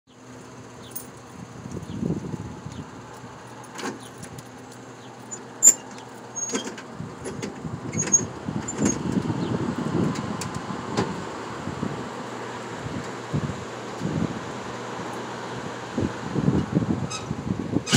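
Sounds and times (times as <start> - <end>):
door unlatching rumble: 0.8 - 12.1.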